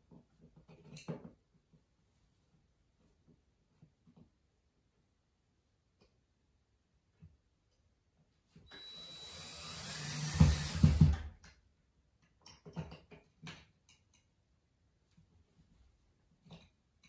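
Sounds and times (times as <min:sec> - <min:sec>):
power drill driving screw: 0:08.7 - 0:11.4.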